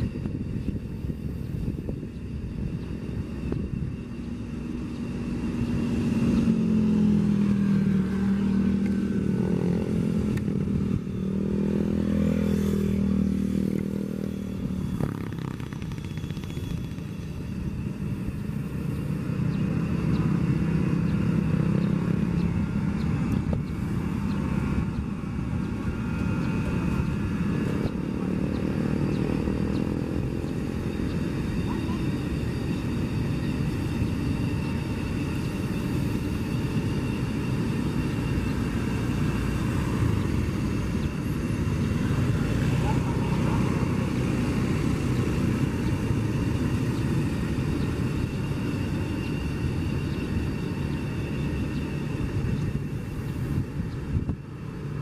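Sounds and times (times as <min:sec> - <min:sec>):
electric train rolling past: 0:00.0 - 0:55.0.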